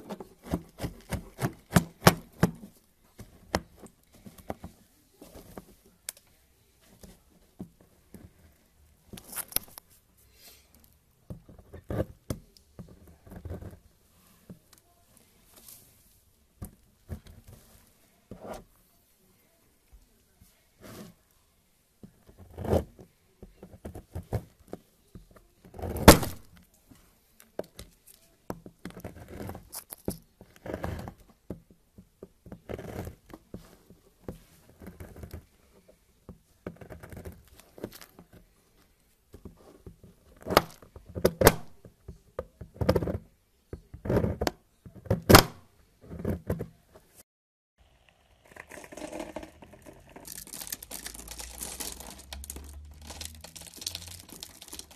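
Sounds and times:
fine crackle of soap cutting: 0.0 - 2.6, 27.4 - 31.3, 32.6 - 33.7, 36.6 - 38.4, 48.0 - 54.9
knife cutting soap: 0.0 - 4.8, 10.8 - 13.8, 22.1 - 24.8, 25.6 - 26.5, 27.4 - 38.5, 39.3 - 43.3, 43.9 - 46.8.

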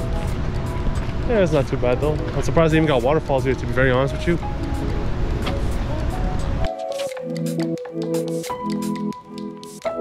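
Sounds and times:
background music: 0.0 - 10.0.

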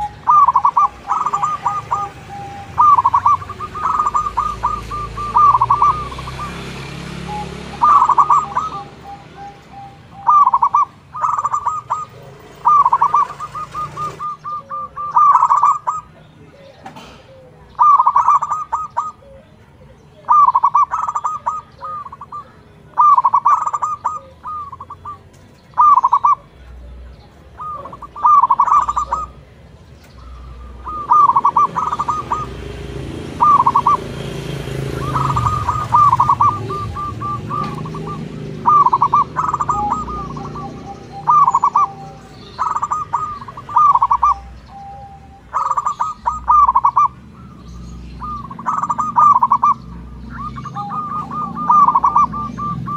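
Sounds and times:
dove cooing: 0.0 - 52.9.

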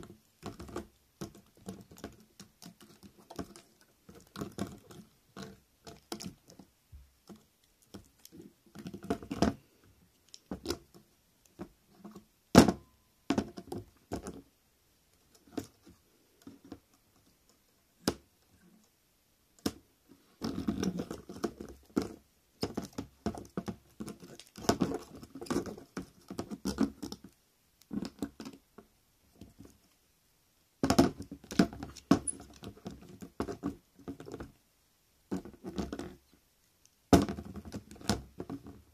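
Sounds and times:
wire legs scraping on plastic: 31.1 - 34.4.

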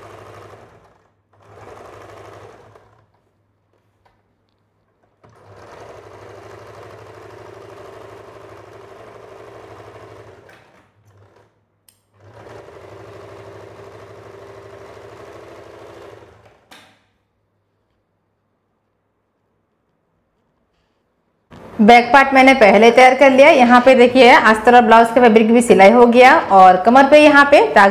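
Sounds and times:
sewing machine stitching fabric: 0.0 - 17.2, 21.5 - 22.2.

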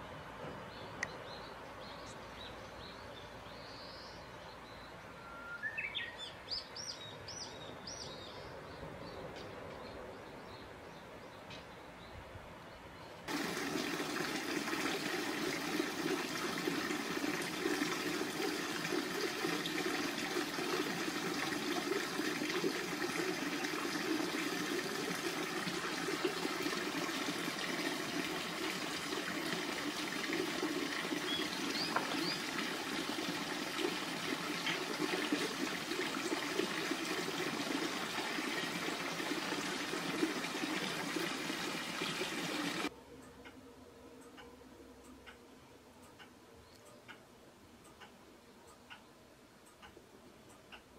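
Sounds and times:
running water rushing: 13.3 - 42.9.

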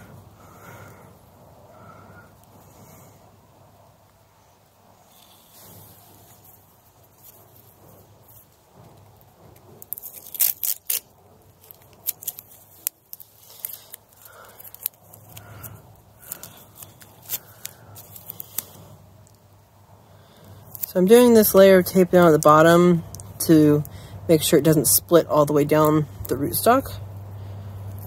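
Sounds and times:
tape crackling and clicking: 5.1 - 19.5, 20.3 - 28.0.

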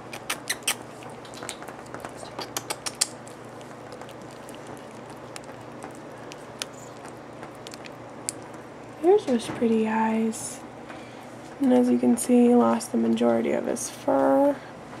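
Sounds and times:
kitten chewing and lapping: 0.0 - 8.9.

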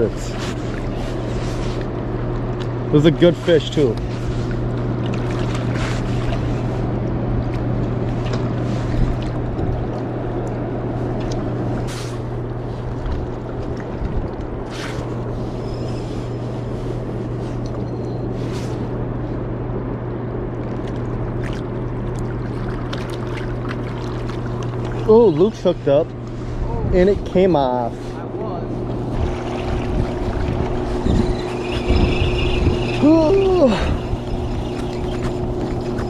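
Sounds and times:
roar of rushing water: 29.0 - 36.0.

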